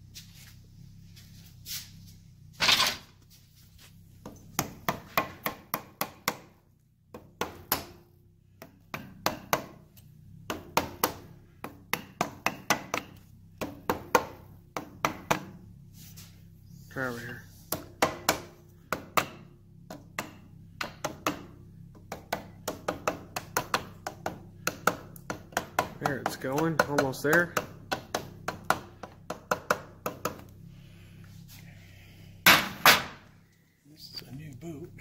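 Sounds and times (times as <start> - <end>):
hammer tapping on wooden block: 4.2 - 6.5, 8.6 - 9.8, 10.5 - 15.5, 17.7 - 30.5
loud hammer knock: 17.7 - 21.5, 32.4 - 33.2.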